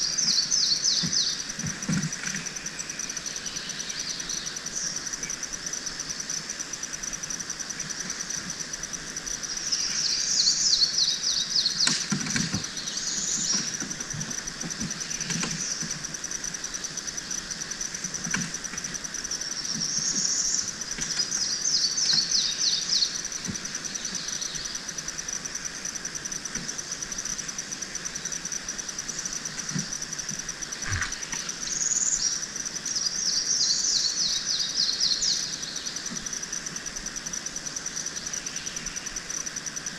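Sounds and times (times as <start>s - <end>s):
songbird chirping: 0.0s - 5.4s, 9.5s - 16.0s, 19.4s - 24.9s, 27.3s - 36.2s
insects trilling: 0.0s - 39.9s.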